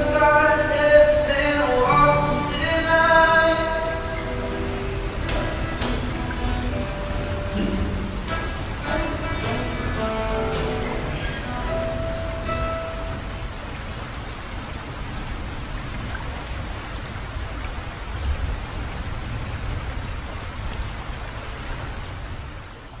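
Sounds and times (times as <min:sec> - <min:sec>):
acoustic guitar notes: 0:00.0 - 0:13.9
steady rain falling: 0:00.0 - 0:23.0.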